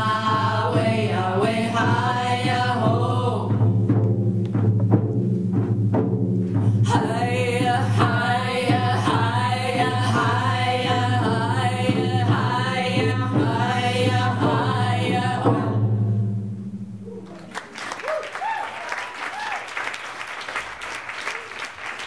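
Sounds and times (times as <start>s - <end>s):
women chanting together: 0.0s - 3.5s
frame drums beating: 0.0s - 18.0s.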